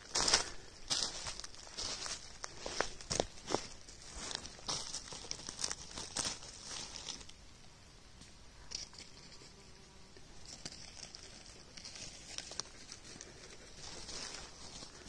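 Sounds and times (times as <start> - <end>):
dry leaves crackling underfoot: 0.0 - 7.4, 10.4 - 15.0.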